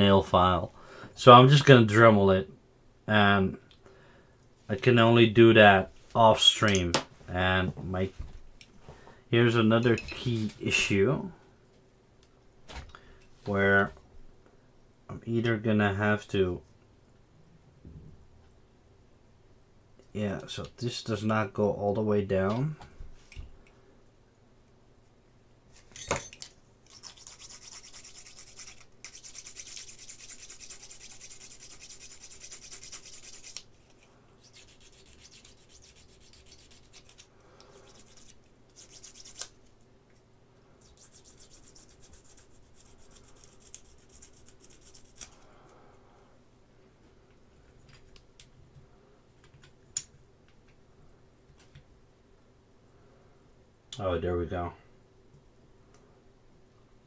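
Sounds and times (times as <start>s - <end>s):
abrasive rubbing strokes: 40.8s - 45.4s.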